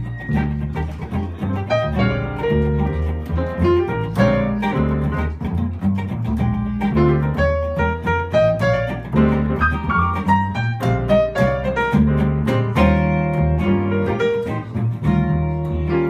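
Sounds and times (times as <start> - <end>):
piano playing jazz chords: 0.0 - 16.0
plucked upright double bass: 0.0 - 16.0.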